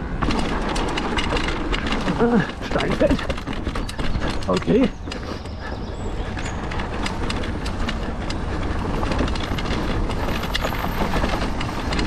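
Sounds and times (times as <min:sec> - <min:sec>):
low rumble of tyres and wind: 0:00.0 - 0:12.0
mountain bike rattling over rocks: 0:00.0 - 0:12.0
sharp knocks and clicks: 0:00.2 - 0:12.0.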